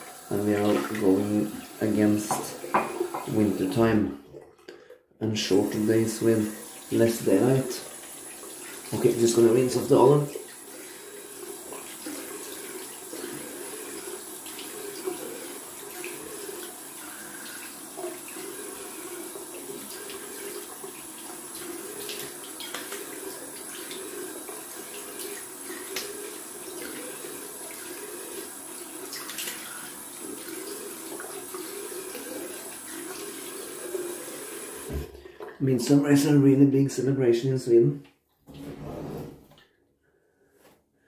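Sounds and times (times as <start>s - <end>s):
water splashes: 0.0s - 36.0s
tap running into sink: 1.9s - 3.8s, 21.5s - 23.7s, 34.8s - 35.5s.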